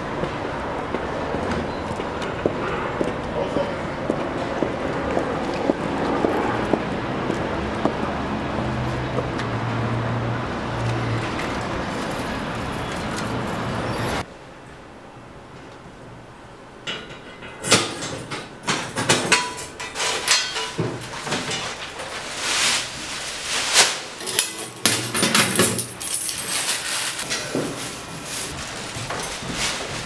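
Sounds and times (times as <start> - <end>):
keys jangling: 11.9 - 14.2, 24.2 - 27.3.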